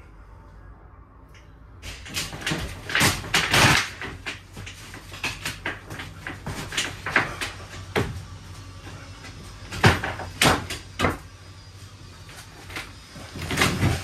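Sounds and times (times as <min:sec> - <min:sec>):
floorboards cracking and knocking: 0:01.9 - 0:11.3, 0:12.3 - 0:14.0.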